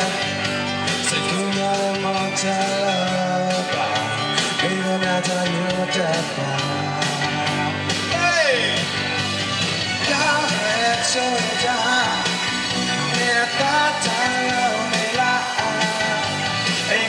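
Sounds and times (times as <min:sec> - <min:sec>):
man singing into microphone: 0:00.0 - 0:00.4, 0:01.0 - 0:08.9, 0:10.0 - 0:17.0
rock band with guitar: 0:00.0 - 0:17.0.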